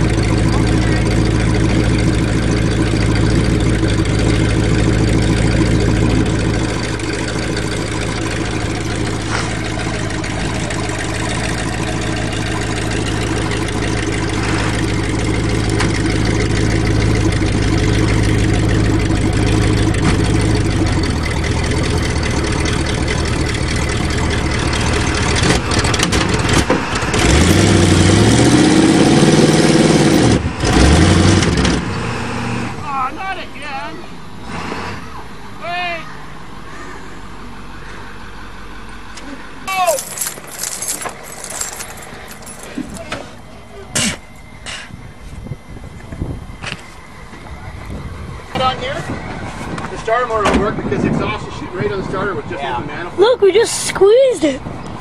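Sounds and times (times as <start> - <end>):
wheels spinning in dirt: 0.0 - 28.6, 39.7 - 43.5
truck engine idling and revving: 0.0 - 55.0.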